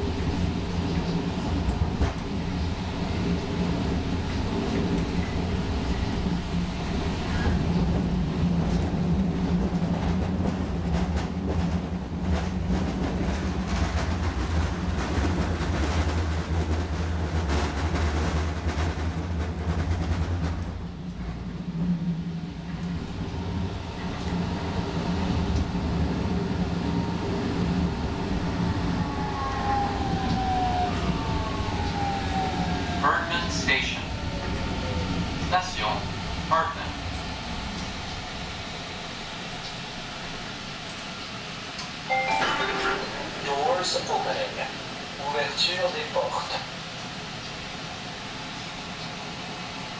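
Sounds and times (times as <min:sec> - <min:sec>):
wheels rumbling on track: 0:00.0 - 0:42.1.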